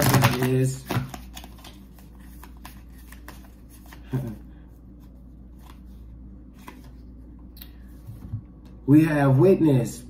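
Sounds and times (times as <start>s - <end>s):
cards shuffling: 0.0s - 7.1s.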